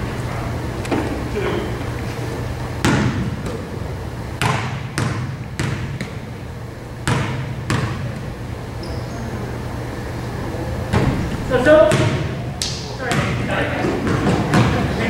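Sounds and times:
basketball bouncing on gym floor: 0:02.8 - 0:03.7, 0:04.4 - 0:06.4, 0:07.0 - 0:09.0, 0:11.8 - 0:15.0.

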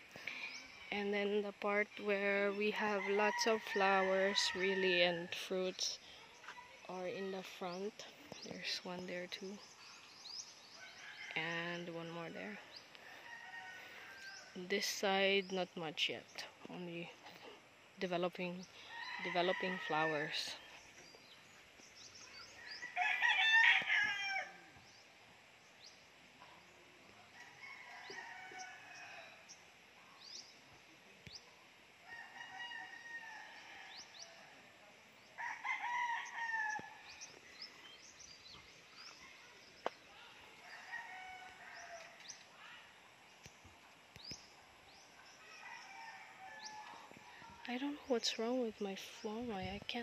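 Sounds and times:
roosters crowing: 0:02.6 - 0:05.3, 0:12.9 - 0:14.6, 0:18.8 - 0:20.9, 0:22.3 - 0:24.9, 0:27.3 - 0:29.6, 0:32.0 - 0:38.2, 0:40.6 - 0:42.4, 0:45.2 - 0:47.4
small birds chirping: 0:05.6 - 0:31.8, 0:33.6 - 0:50.0.

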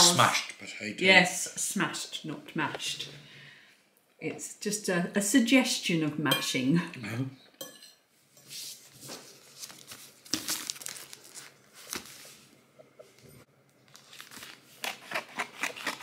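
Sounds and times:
plastic mailing bag crinkling: 0:09.3 - 0:12.5, 0:13.8 - 0:16.0.

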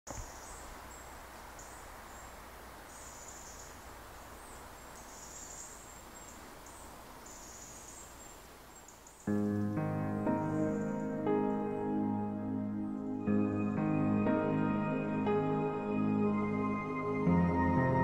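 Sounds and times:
insects chirping: 0:00.1 - 0:12.0
soft steady hiss: 0:00.1 - 0:17.5.

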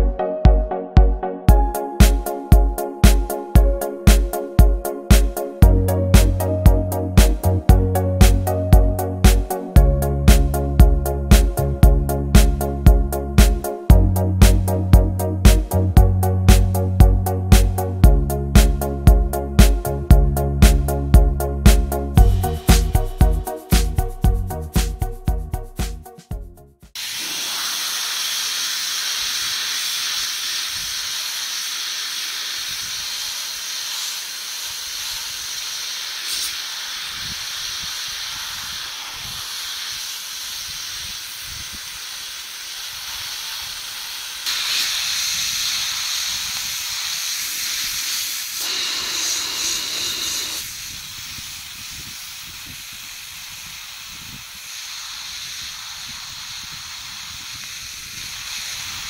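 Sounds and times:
sandblaster hissing: 0:01.8 - 0:06.6, 0:27.0 - 0:59.0.

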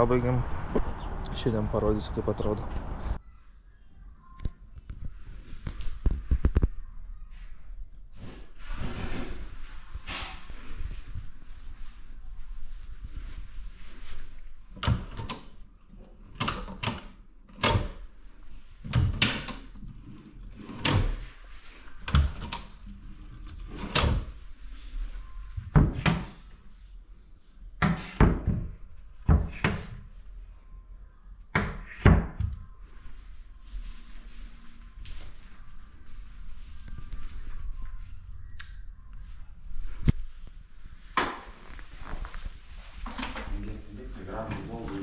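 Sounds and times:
doors thudding and knocking: 0:25.6 - 0:26.4.

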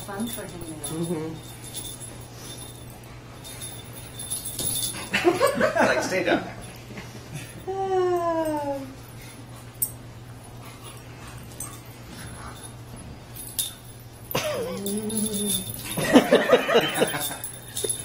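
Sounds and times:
dog growling: 0:14.4 - 0:15.9.

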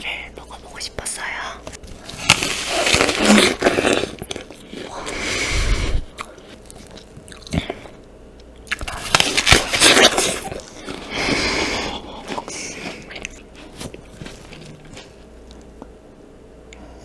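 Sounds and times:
apple being bitten and chewed: 0:01.9 - 0:05.2, 0:05.9 - 0:15.9.

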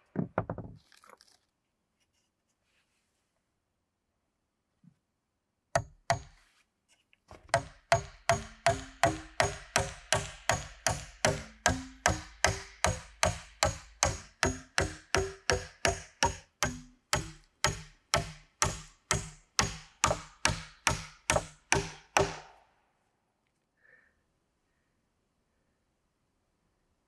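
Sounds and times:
sharp ringing knocks: 0:07.5 - 0:22.5.

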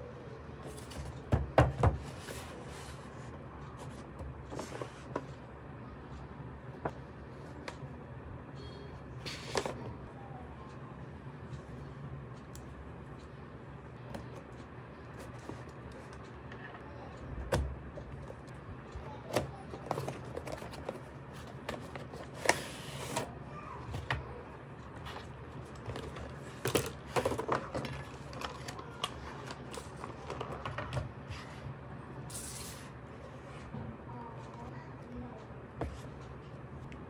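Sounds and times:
cardboard and plastic packaging rustling: 0:19.3 - 0:23.3, 0:24.9 - 0:31.6.

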